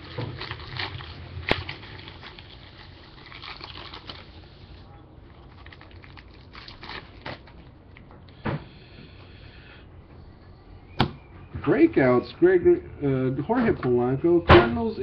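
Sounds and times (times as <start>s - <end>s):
foil wrapper tearing and crinkling: 0.0s - 7.7s.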